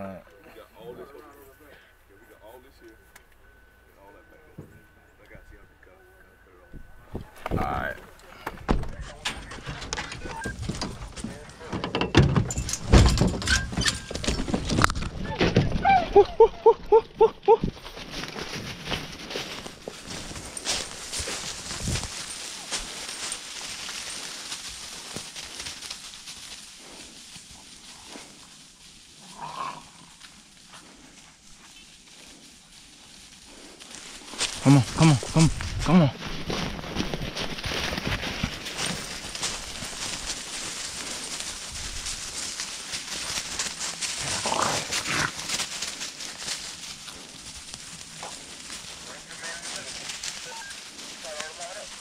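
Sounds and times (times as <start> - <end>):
rustling through dry leaves: 12.8 - 52.0
footsteps crunching on leaf litter: 17.7 - 52.0.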